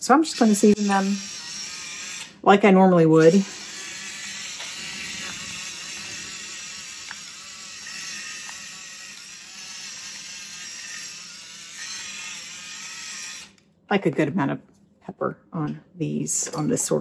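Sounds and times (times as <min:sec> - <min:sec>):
pepper grinder motor whirring: 0:00.0 - 0:02.4, 0:03.2 - 0:13.6.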